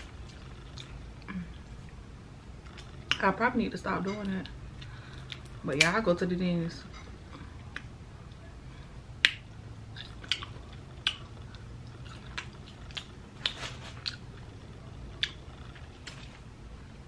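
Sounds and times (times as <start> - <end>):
chewing seafood: 9.2 - 16.4.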